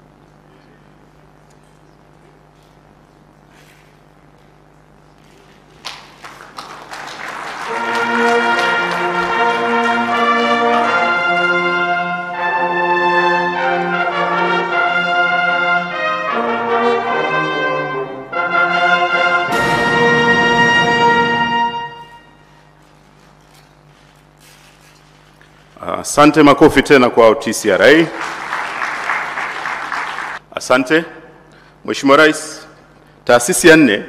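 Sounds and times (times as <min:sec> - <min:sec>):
brass music slow chords: 0:07.6 - 0:22.7.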